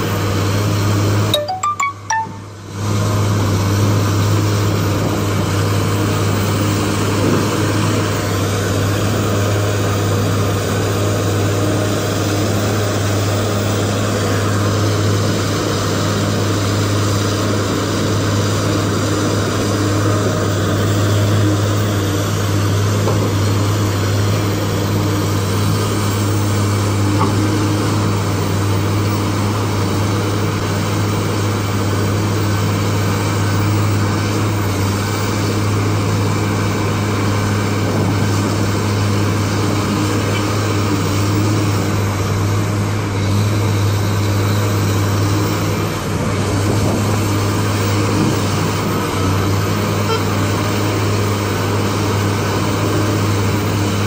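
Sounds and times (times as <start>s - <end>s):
heavy diesel engines droning: 0.0s - 54.0s.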